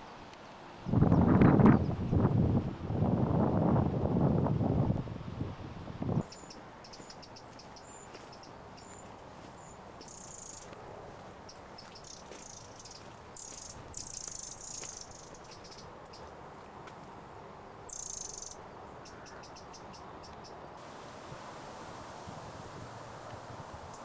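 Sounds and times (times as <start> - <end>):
steady hiss: 6.1 - 24.0.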